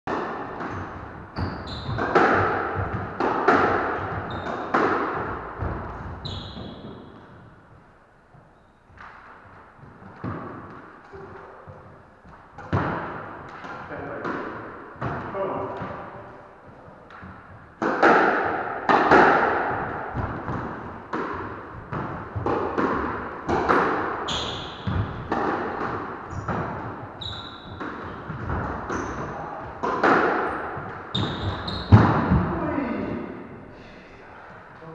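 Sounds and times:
squash ball cracks echoing: 0.1 - 7.4, 12.3 - 33.6
shoes squeaking on wooden floor: 0.7 - 7.4, 8.3 - 9.0, 24.1 - 29.8, 30.5 - 32.6.

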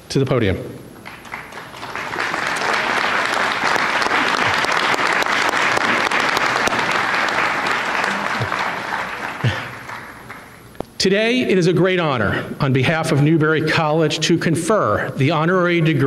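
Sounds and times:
audience applauding: 1.0 - 10.7.

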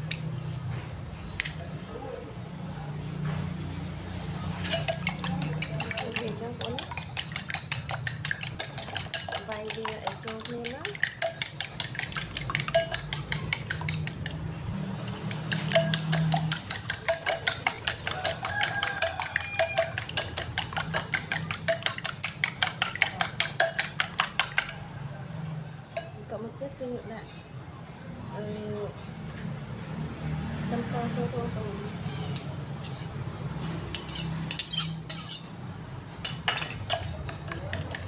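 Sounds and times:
spoon clinking against ceramic bowl: 4.6 - 14.5, 15.1 - 24.8, 26.0 - 26.3, 36.2 - 38.0.

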